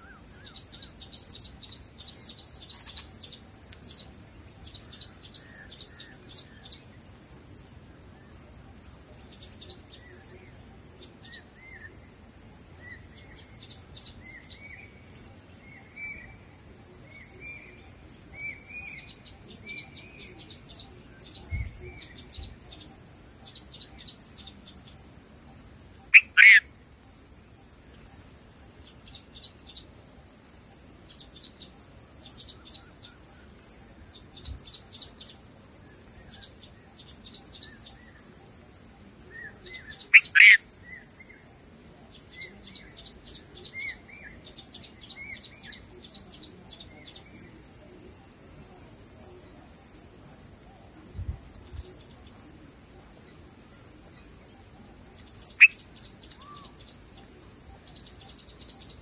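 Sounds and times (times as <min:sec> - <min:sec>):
soft bird chirps: 0:00.0 - 0:29.9, 0:31.0 - 0:41.4, 0:51.0 - 0:59.0
high drone of insects: 0:00.0 - 0:59.0
loud short bird calls: 0:40.1 - 0:40.6.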